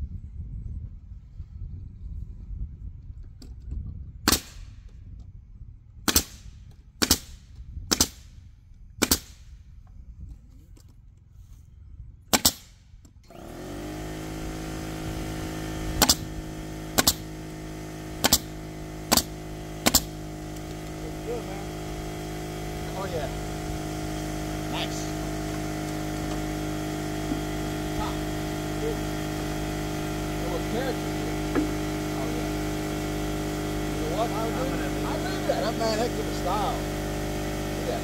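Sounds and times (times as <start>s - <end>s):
nail gun shots: 4.2s - 4.8s, 6.0s - 8.4s, 9.0s - 9.6s, 12.3s - 13.5s, 16.0s - 17.4s, 18.2s - 20.2s
motor running: 13.1s - 38.0s.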